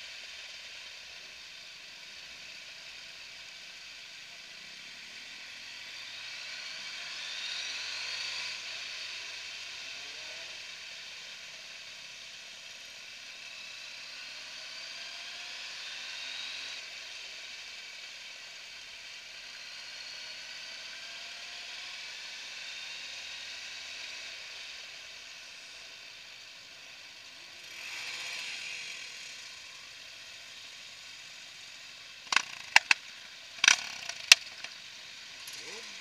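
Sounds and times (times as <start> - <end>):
motorcycle riding slowly: 21.4 - 36.0
sharp clicks and knocks: 32.3 - 33.0, 33.6 - 34.8.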